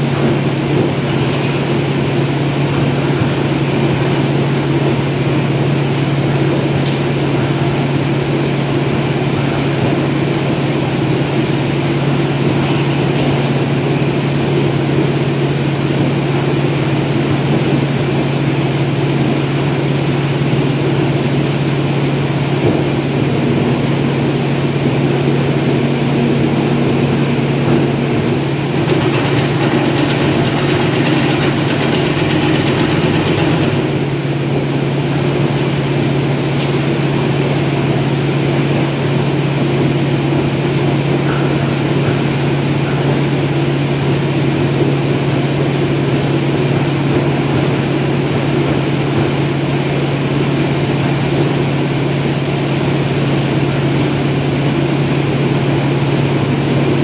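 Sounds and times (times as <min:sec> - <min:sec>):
machine humming: 0:26.2 - 0:35.3.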